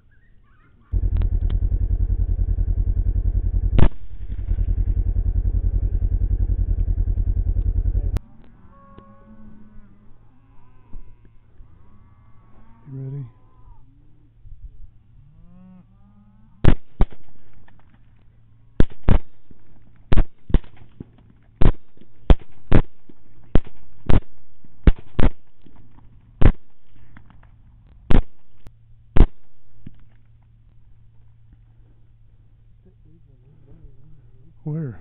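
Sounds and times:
suppressed rifle fire: 0:01.0 - 0:08.2, 0:16.7 - 0:17.6, 0:18.8 - 0:21.0, 0:21.6 - 0:25.7, 0:26.4 - 0:26.8, 0:29.2 - 0:30.0.

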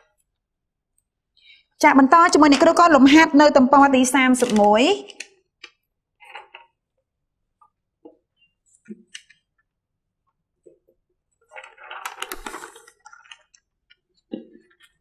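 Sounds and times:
paper sheet rustling: 0:04.4 - 0:04.9, 0:11.5 - 0:13.4.

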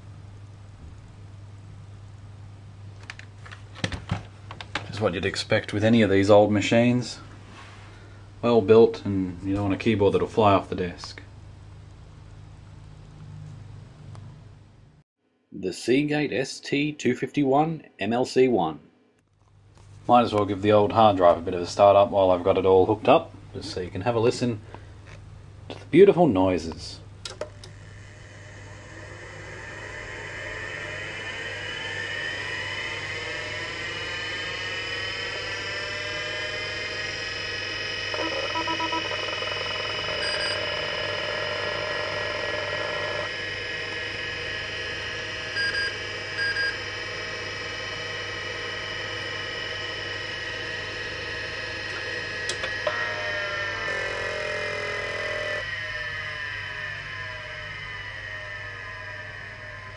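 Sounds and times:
hard drive whine: 0:19.8 - 0:59.9
drive head buzzing: 0:26.5 - 0:59.9
drive head chirps: 0:26.7 - 0:59.9.

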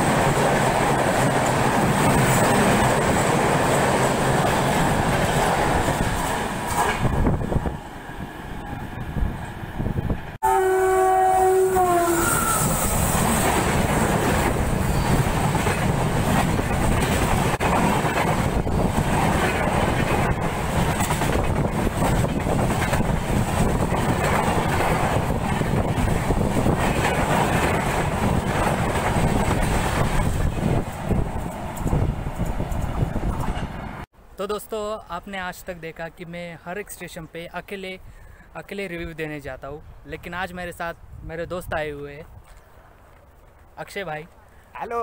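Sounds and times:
train wheels clattering on rail: 0:00.0 - 0:07.8, 0:12.8 - 0:34.1
locomotive horn: 0:10.4 - 0:12.9.

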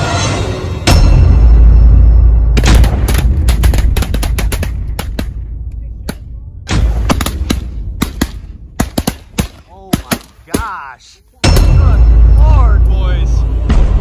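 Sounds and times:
shotgun blasts: 0:02.6 - 0:10.7.

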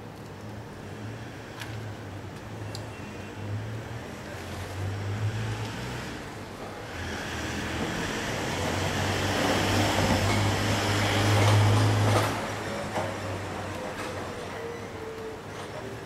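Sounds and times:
road vehicle passing: 0:00.7 - 0:16.0.

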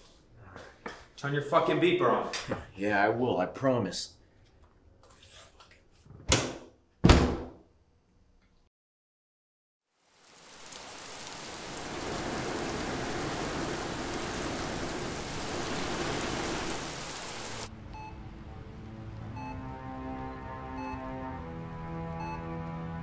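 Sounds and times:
hiss of falling water: 0:09.9 - 0:17.7
soft music with held notes: 0:17.7 - 0:23.0.

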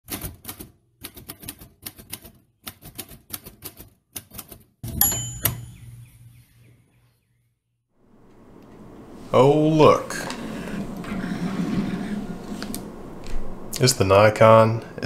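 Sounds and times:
typewriter bell ringing: 0:04.9 - 0:06.0.

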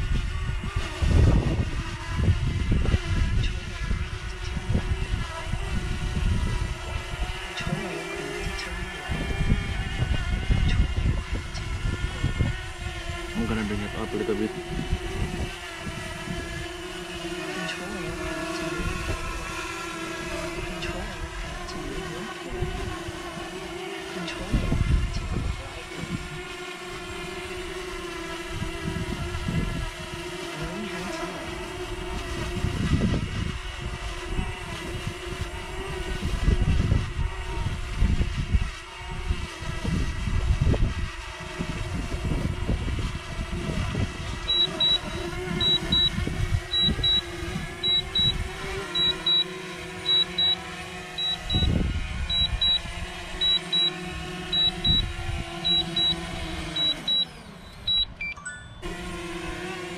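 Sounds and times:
wind gusting on microphone: 0:00.0 - 0:17.2, 0:17.9 - 0:30.4, 0:31.4 - 0:49.1, 0:51.0 - 0:56.8
drone propellers buzzing hum: 0:00.0 - 0:59.9
short high beeps: 0:44.5 - 0:46.1, 0:46.7 - 0:48.4, 0:49.0 - 0:49.5, 0:50.1 - 0:50.6, 0:51.2 - 0:51.7, 0:52.3 - 0:52.8, 0:53.4 - 0:53.9, 0:54.5 - 0:56.2, 0:56.8 - 0:58.9.

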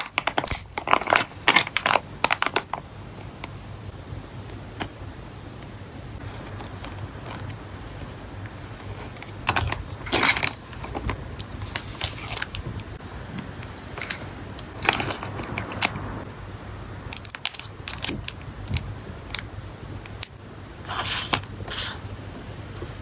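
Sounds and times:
paper rustling: 0:06.2 - 0:15.8
cards tapping and clicking: 0:09.2 - 0:16.1.

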